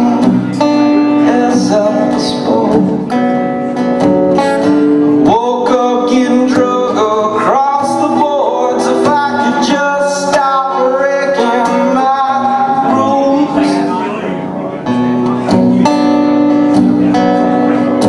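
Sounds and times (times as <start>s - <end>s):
man singing: 0.0s - 3.9s, 5.0s - 14.5s
acoustic guitar strumming: 0.0s - 18.0s.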